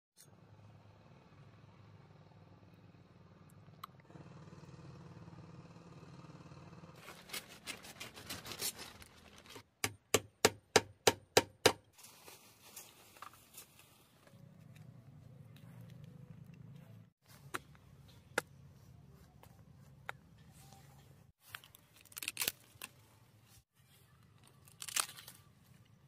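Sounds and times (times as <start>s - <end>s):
plastic tarp rustling: 7.0s - 9.6s, 12.0s - 14.2s.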